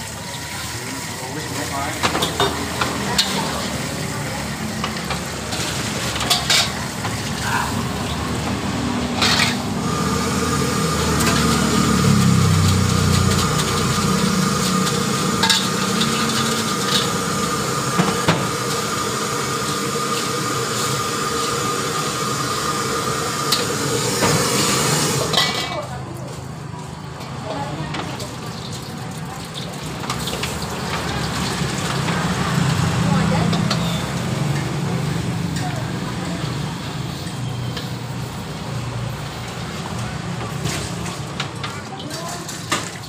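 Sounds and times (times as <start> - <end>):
liquid sizzling in a pan: 0.0 - 26.3, 27.3 - 43.0
metal spatula scraping a wok: 9.1 - 9.8.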